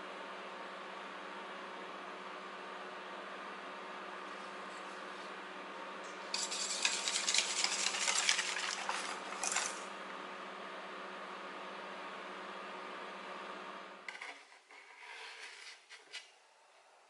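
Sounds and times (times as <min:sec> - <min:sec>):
whisk rattling in metal bowl: 0:06.4 - 0:09.9.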